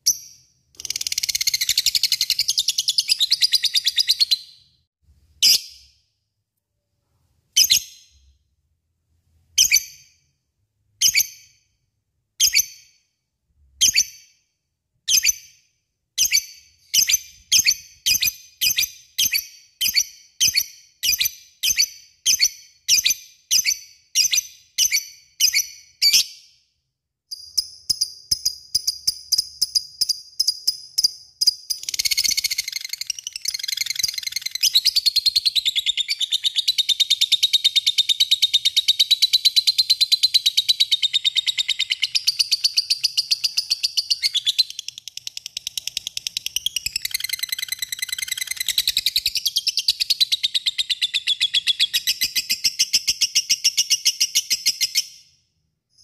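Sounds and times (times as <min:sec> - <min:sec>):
lovebird chirping: 0:00.0 - 0:04.8, 0:27.3 - 0:55.2.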